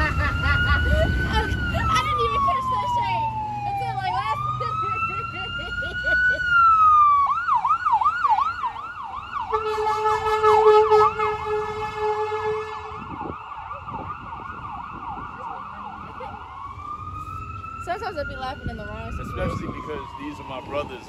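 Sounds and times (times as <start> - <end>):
emergency vehicle siren: 0.0 - 21.0
blaring horn: 9.4 - 13.4.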